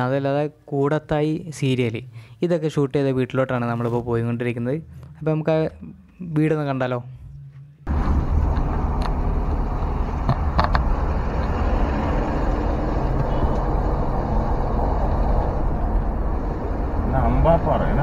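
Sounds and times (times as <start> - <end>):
car engine and tyre rumble: 7.8 - 18.0.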